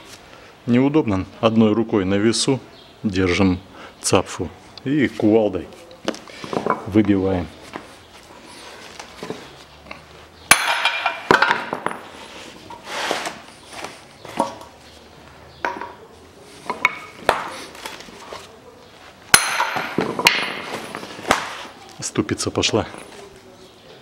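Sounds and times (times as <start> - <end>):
sledgehammer striking steel: 10.5 - 11.8, 19.3 - 20.8.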